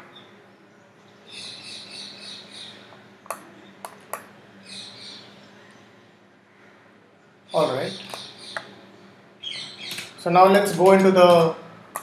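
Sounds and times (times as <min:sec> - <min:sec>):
bird chirping rapidly: 0:01.2 - 0:03.8, 0:07.5 - 0:10.4.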